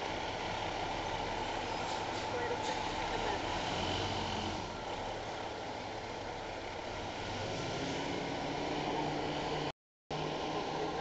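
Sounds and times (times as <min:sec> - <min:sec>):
diesel truck engine running: 0:00.0 - 0:07.5.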